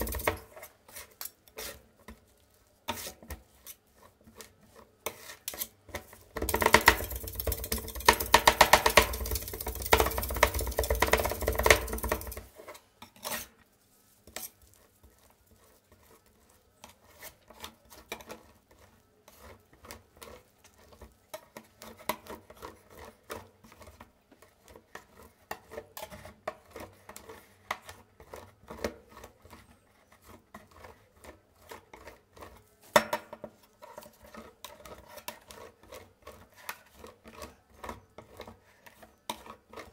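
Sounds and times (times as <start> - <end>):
metal spatulas chopping on pan: 0.0 - 2.2, 2.9 - 13.6, 30.2 - 39.9
spatula scraping and tapping: 0.0 - 39.9.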